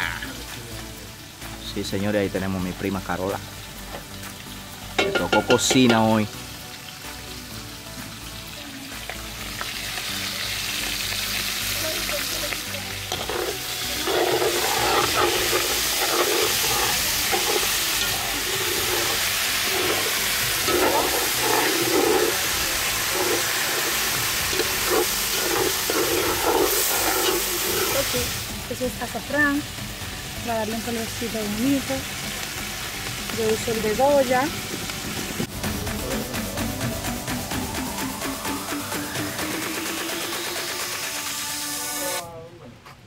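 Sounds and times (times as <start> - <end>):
sausage and greens sizzling: 0.0 - 42.4
spoon scraping pot: 13.1 - 28.0.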